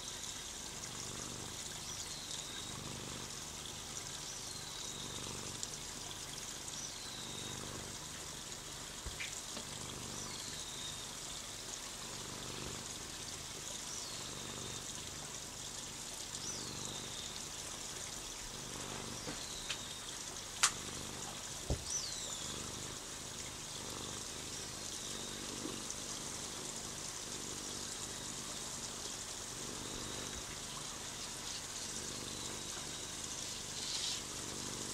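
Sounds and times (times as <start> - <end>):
water trickling: 0.0 - 34.9.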